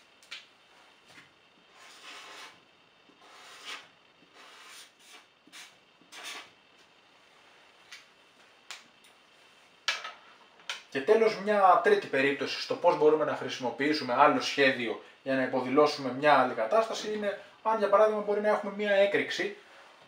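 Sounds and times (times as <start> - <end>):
marker rubbing on paper: 1.7 - 2.6, 3.2 - 6.5.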